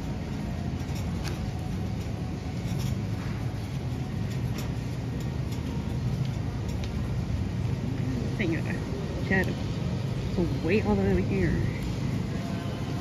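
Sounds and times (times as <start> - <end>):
cart clicks and rattles: 0.0 - 7.8
shopping cart wheels rumbling: 0.0 - 13.0.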